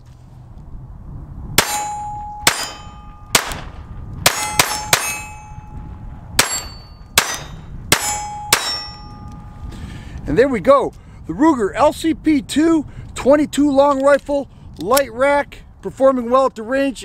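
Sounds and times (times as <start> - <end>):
steel gong target ringing: 1.6 - 3.5, 4.3 - 9.7
pistol shots: 1.6 - 5.3, 6.4 - 9.0.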